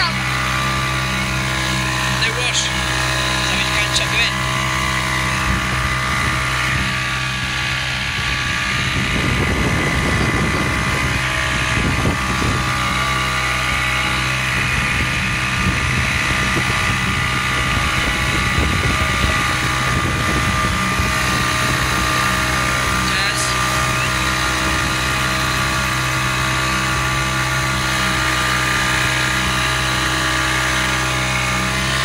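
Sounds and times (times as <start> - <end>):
outboard motor running: 0.0 - 32.0
wind noise on microphone: 4.5 - 30.6.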